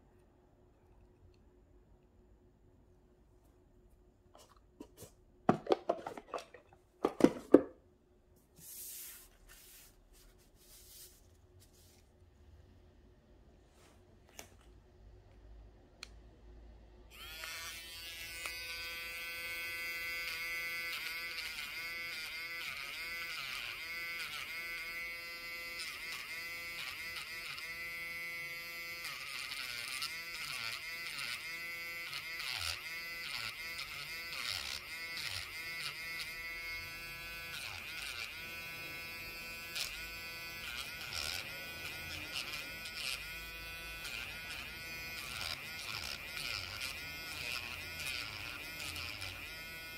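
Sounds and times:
electric nail drill whining: 17.1 - 49.9.

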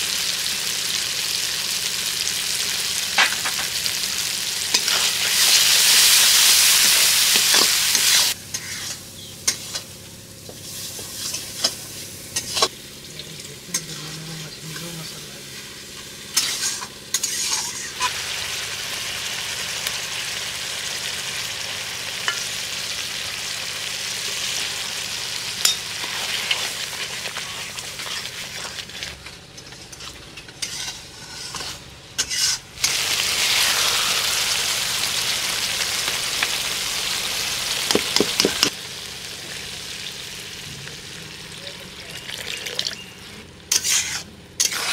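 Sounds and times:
curry sizzling in a pan: 0.0 - 44.9
spatula scraping a pan: 7.4 - 9.9, 10.6 - 12.7, 16.4 - 18.1, 25.6 - 32.6, 43.7 - 44.9.

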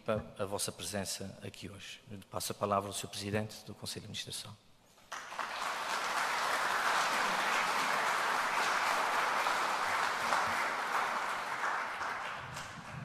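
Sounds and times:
audience applauding: 5.1 - 13.0.

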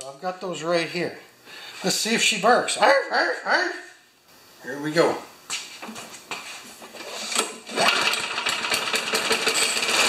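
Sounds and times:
lawn mower engine running roughly: 7.7 - 10.0.

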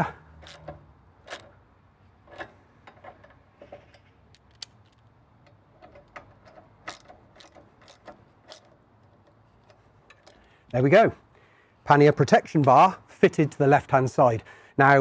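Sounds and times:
hand ratchet clicking: 0.0 - 1.6, 2.3 - 10.8.

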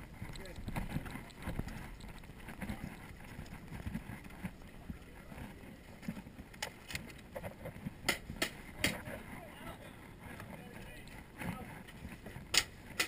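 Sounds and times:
gear rustling: 0.0 - 8.0.

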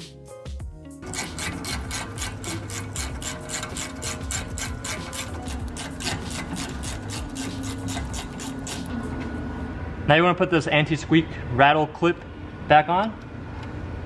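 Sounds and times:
hand ratchet clicking rapidly: 1.0 - 8.9.

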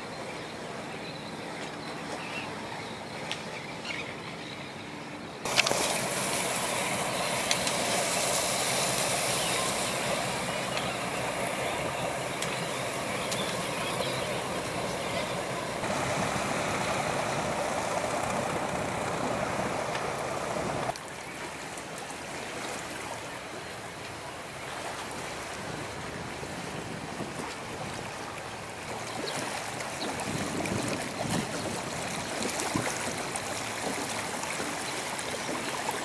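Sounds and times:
water noise: 0.0 - 36.0
wind noise: 5.5 - 20.9, 30.0 - 32.9
boat engine running: 5.5 - 21.0.

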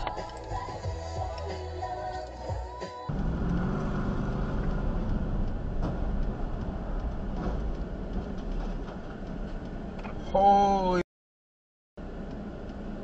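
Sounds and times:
car driving rumble: 3.1 - 11.0.

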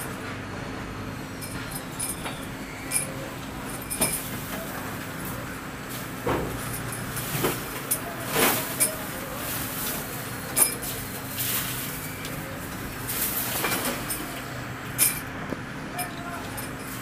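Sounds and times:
metal clinks and knocks: 1.4 - 4.6, 12.7 - 17.0.

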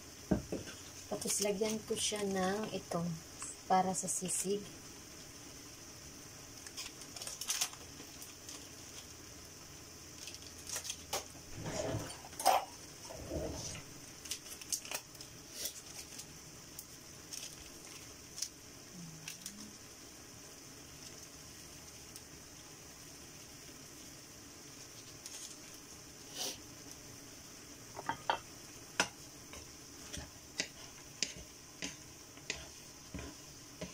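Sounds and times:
meat sizzling in a pan: 0.0 - 33.9
plastic packet crinkling: 6.6 - 9.1, 14.2 - 16.3.

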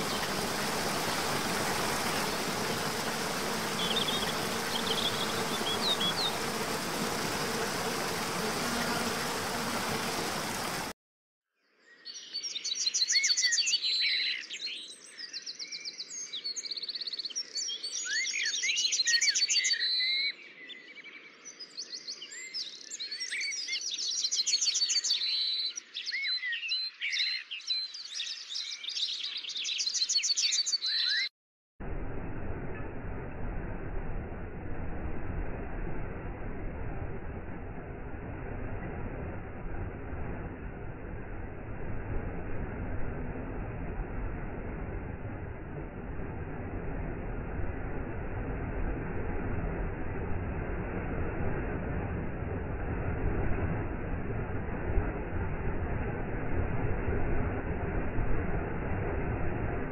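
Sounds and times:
songbirds chirping and trilling: 0.0 - 8.8, 11.7 - 31.3
waterfall rushing: 0.0 - 11.0.

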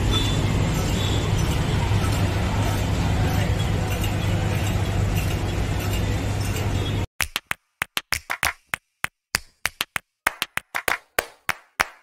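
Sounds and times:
street stall background hum: 0.0 - 7.1
music of sharp claps and taps: 7.2 - 12.0.

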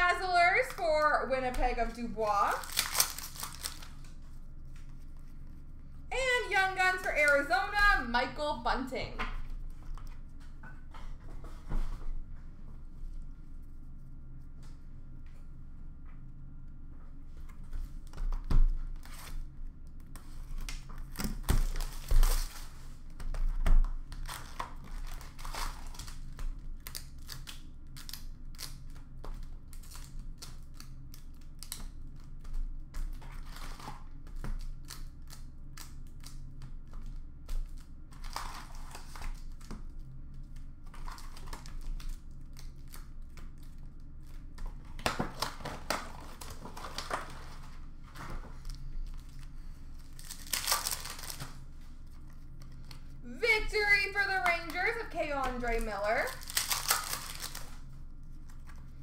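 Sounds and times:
cardboard and wrappers crinkling: 0.1 - 5.4, 20.2 - 31.8, 37.6 - 59.0.

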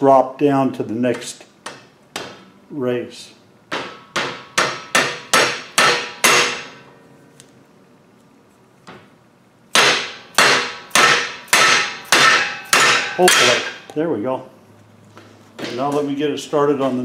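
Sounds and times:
mallet striking metal: 3.7 - 6.8, 9.7 - 13.9.

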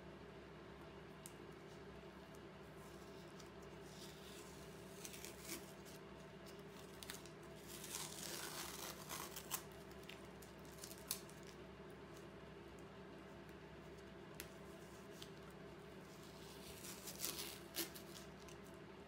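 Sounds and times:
masking tape peeling: 3.2 - 11.6, 16.2 - 18.6.

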